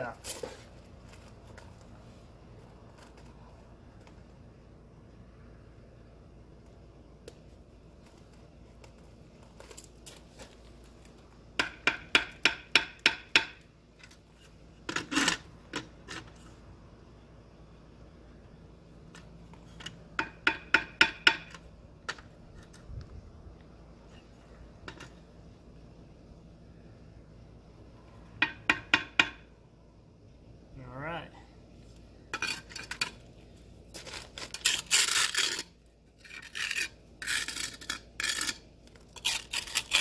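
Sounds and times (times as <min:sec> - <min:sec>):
trowel scrape: 0:33.9 - 0:40.0.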